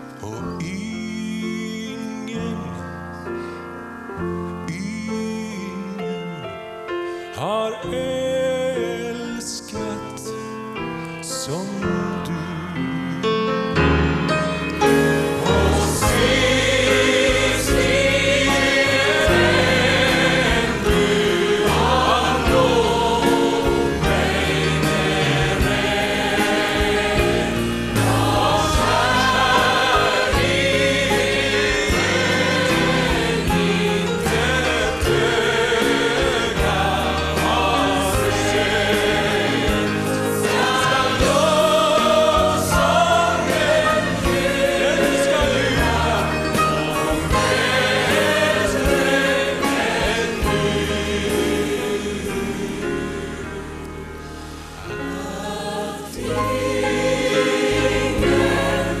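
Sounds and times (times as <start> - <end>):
grand piano accompaniment: 0.0 - 59.0
audience singing a hymn: 12.4 - 59.0.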